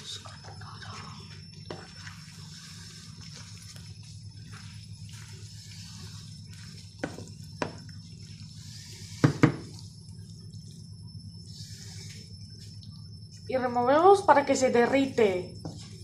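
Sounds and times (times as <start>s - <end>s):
spatula stirring sauce squelching: 1.6s - 12.7s.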